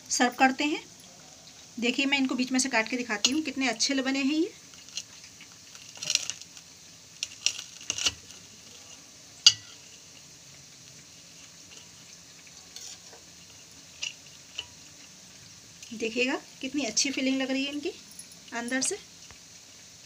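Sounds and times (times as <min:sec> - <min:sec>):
knife crunching bread roll: 0:04.8 - 0:06.6, 0:07.2 - 0:09.0
knife clinking on steel plate: 0:09.5 - 0:09.8.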